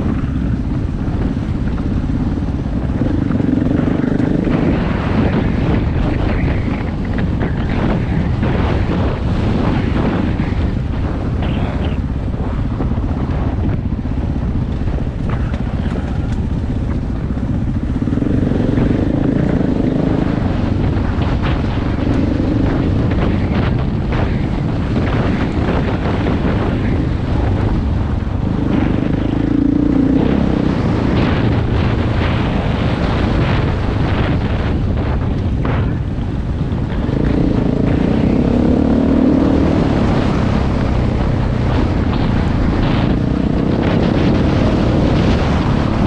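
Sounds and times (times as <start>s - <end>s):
wind buffeting microphone: 0.0s - 46.0s
dirt bike engine revving: 37.0s - 46.0s.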